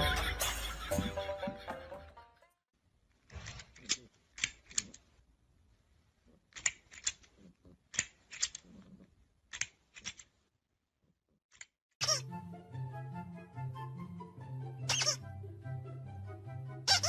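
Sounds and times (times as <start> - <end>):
music: 0.0 - 2.6, 12.0 - 17.0.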